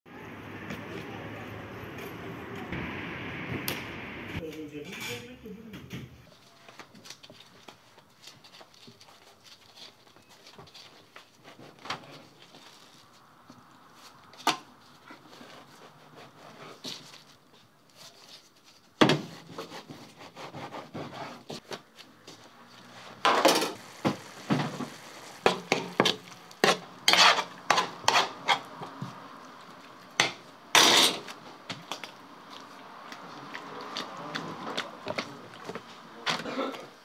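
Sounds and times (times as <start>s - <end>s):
metal spatula scraping steel pan: 22.8s - 29.2s, 30.2s - 31.4s.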